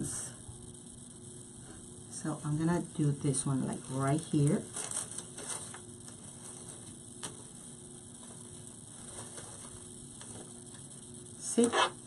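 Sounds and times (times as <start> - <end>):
artificial greenery handling: 3.6 - 10.9.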